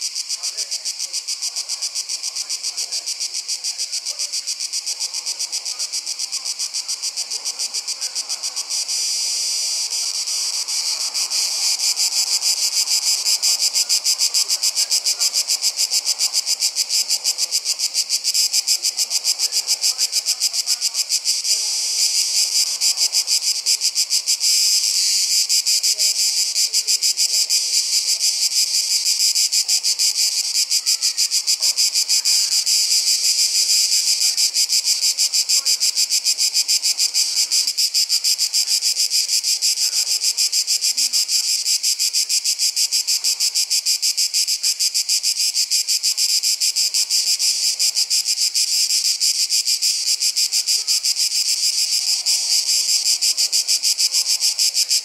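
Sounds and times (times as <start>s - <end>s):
insects chirring: 0.0s - 55.0s.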